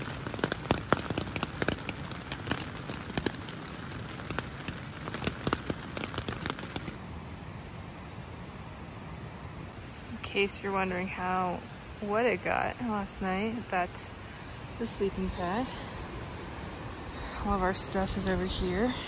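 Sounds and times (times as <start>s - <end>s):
raindrops tapping on tent fly: 0.0s - 7.0s
steady hiss of rain: 0.0s - 19.0s.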